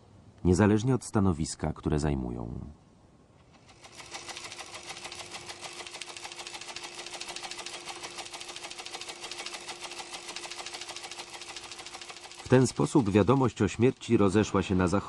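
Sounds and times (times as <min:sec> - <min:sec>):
motor hum: 0:03.4 - 0:15.0
teleprinter clatter: 0:03.5 - 0:15.0.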